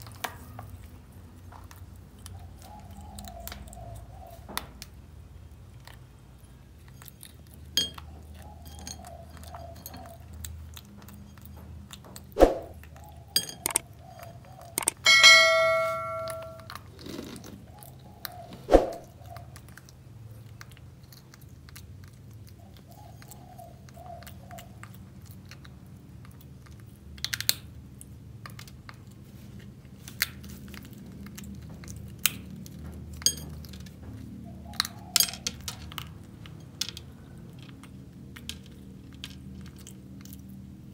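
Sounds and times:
monkey chewing and crunching candy: 0.0s - 15.1s, 16.6s - 40.9s
ringing bell-like tone: 15.0s - 16.7s.

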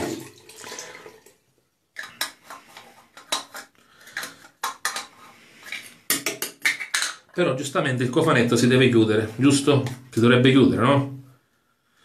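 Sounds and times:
hard containers clinking: 2.0s - 7.4s.

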